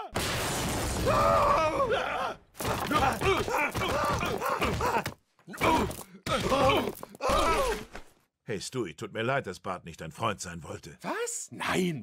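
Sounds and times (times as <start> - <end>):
cartoon men groaning in pain: 1.0 - 8.0.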